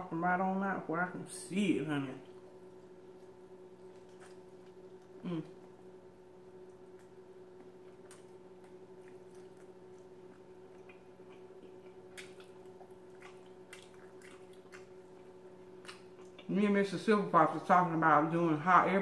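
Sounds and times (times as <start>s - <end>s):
steady low hum: 0.0s - 19.0s
person chewing food: 2.3s - 16.5s.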